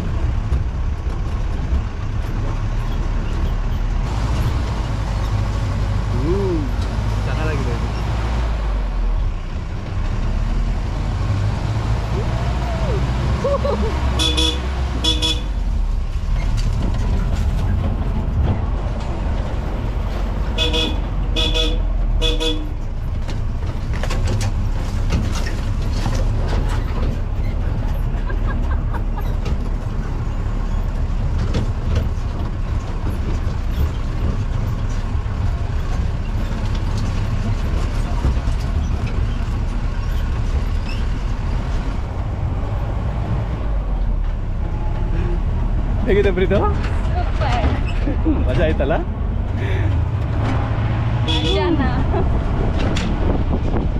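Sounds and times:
knocks and rattles from bumps: 0.0 - 6.0, 15.9 - 21.4, 22.7 - 51.0, 51.9 - 53.9
jeep engine rumble: 0.0 - 53.9
car horn toots: 14.2 - 15.6, 20.6 - 22.8, 51.2 - 51.7.

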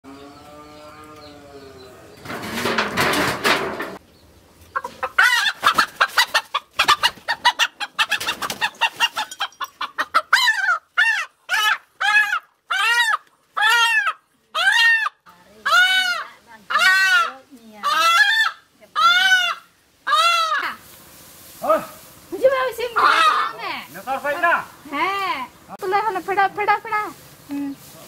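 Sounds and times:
chicken clucking: 4.6 - 20.6, 22.9 - 23.6
chicken squawking in alarm: 4.8 - 20.8, 22.9 - 23.7.

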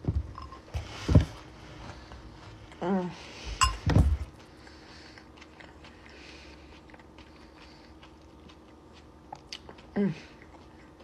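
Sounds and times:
close-mouthed chewing: 4.2 - 11.0.

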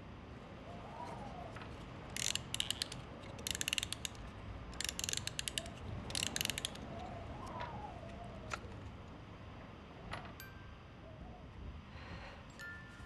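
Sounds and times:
ratchet clicking rapidly: 2.2 - 6.9
faint wavering whine: 7.0 - 13.0.

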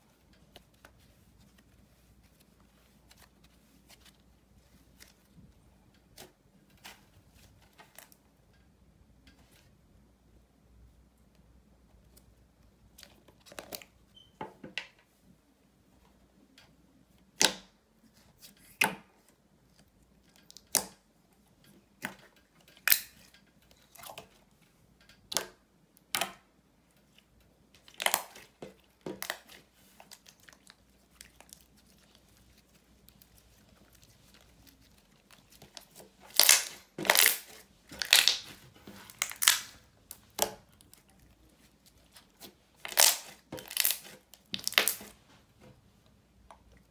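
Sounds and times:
slime popping and squelching: 27.8 - 45.2.

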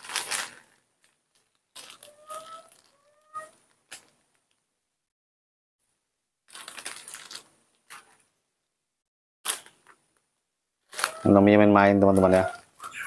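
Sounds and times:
crinkly crunching rustle: 0.0 - 4.6, 6.5 - 8.3, 10.8 - 13.0.

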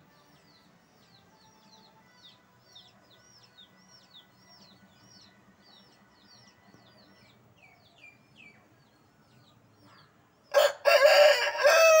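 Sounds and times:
small birds chirping: 0.0 - 10.7
rooster crowing: 10.5 - 12.0.

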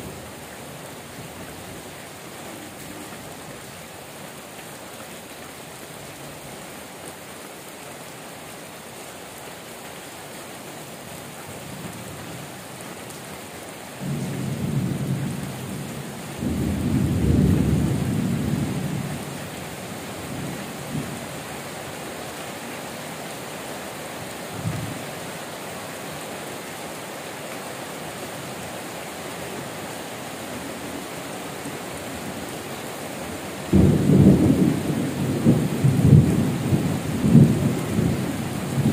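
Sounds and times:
heavy rain falling: 0.0 - 38.9.

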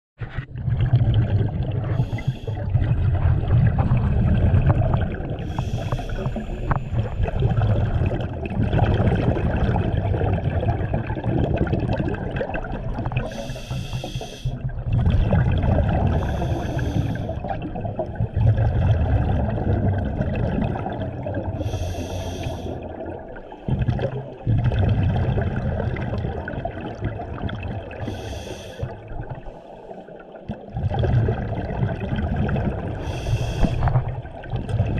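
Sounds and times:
underwater exhaled bubbles gurgling: 0.2 - 34.9
regulator inhale hiss: 1.9 - 2.6, 5.4 - 7.1, 13.3 - 14.6, 16.2 - 17.4, 21.6 - 22.9, 28.0 - 28.9, 33.0 - 34.1.

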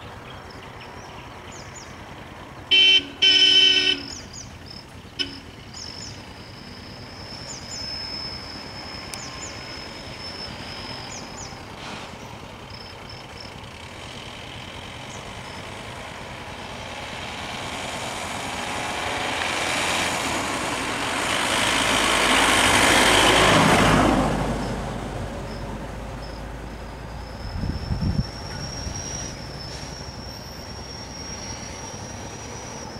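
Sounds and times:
vehicle engines idling: 0.0 - 32.9
high whine with short chirps: 5.2 - 11.7, 25.5 - 32.9
vehicle driving past: 5.5 - 32.9.

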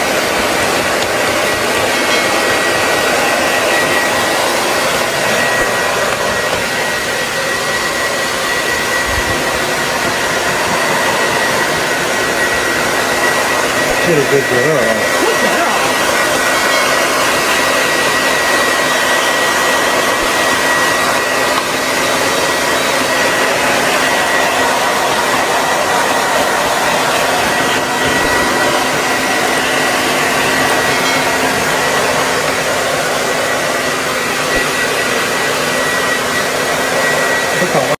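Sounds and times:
hair dryer blowing: 0.0 - 38.0.

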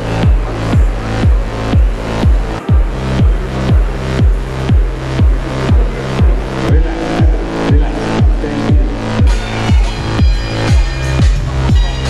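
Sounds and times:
deep kick drum: 0.0 - 12.0
electronic dance music: 0.0 - 12.0.

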